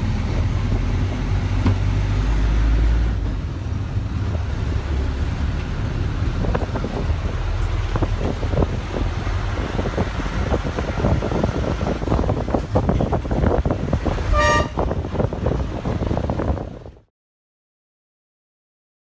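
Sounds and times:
bus engine rumble and rattling: 0:00.0 - 0:17.1
bus horn toot: 0:14.2 - 0:15.0.

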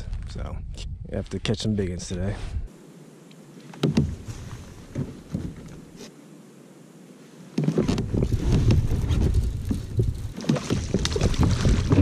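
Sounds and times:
knocks and rustles of fishing gear: 0:03.7 - 0:05.8, 0:07.6 - 0:12.0.

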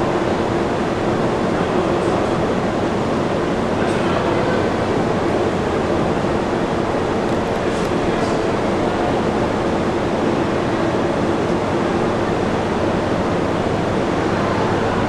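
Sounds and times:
subway station background roar: 0:00.0 - 0:15.0.

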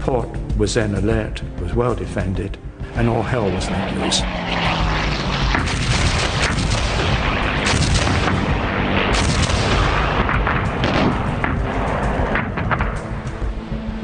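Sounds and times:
low rumble: 0:01.4 - 0:14.0
heavy gunfire and artillery: 0:05.5 - 0:13.5.

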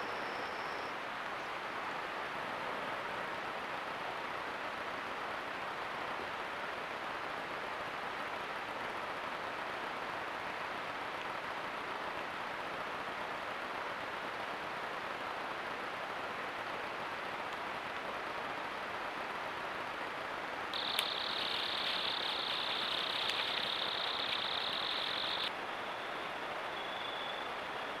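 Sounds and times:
microphone hiss: 0:00.0 - 0:28.0
insect trilling: 0:20.8 - 0:25.5.

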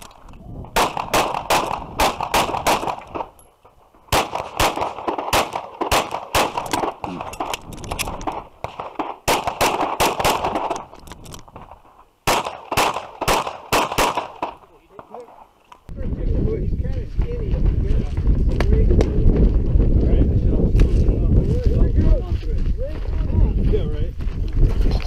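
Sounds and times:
pistol shots: 0:00.7 - 0:03.4, 0:04.1 - 0:10.9, 0:12.2 - 0:15.2.

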